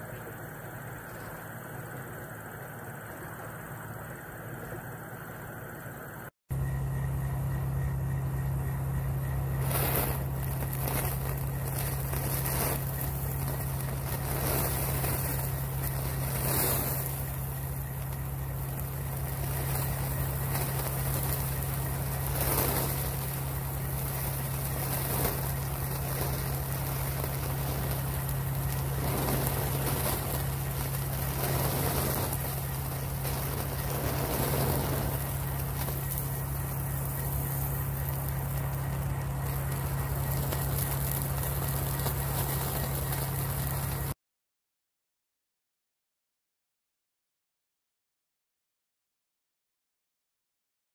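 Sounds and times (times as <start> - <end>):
constant low hum: 0.0 - 44.2
jet flame hissing: 6.6 - 44.2.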